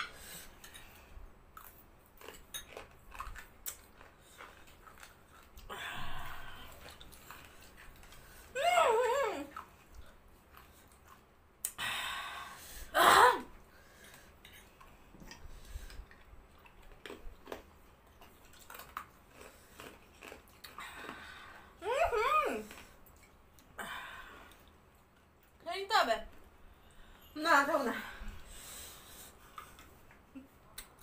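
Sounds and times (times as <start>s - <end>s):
soft chewing: 0.0s - 11.8s, 13.5s - 25.6s, 28.1s - 31.0s
person crying out: 13.0s - 13.5s.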